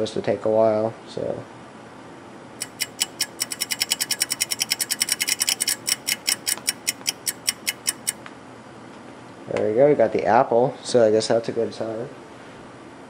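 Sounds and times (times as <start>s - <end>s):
rapid mechanical clicking: 2.6s - 8.2s.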